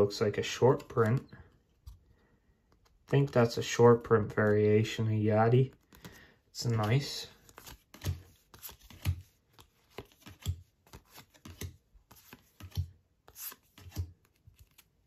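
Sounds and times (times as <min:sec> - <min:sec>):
trading cards sliding: 0:05.8 - 0:15.0.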